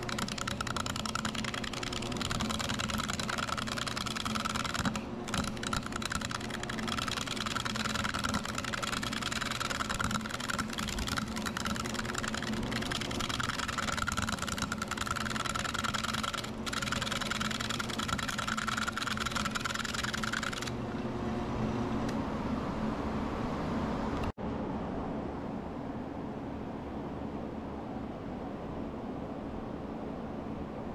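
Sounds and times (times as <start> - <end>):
gouge scraping spinning wood: 0.0 - 20.8
lathe motor hum: 0.0 - 21.0.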